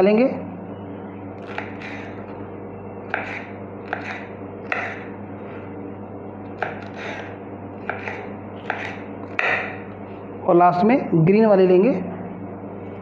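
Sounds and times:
knife chopping on wooden board: 0:01.4 - 0:02.2, 0:03.1 - 0:05.1, 0:06.6 - 0:09.8.

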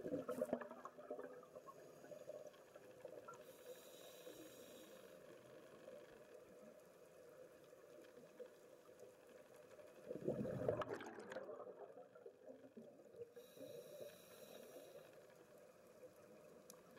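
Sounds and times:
underwater ambience: 0:00.0 - 0:16.9
bubbles from diver exhaling: 0:10.1 - 0:12.9.

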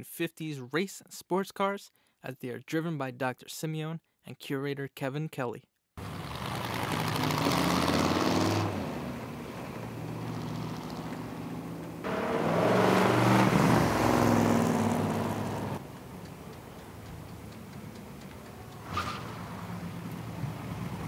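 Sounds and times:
car engine driving past: 0:06.0 - 0:21.0.

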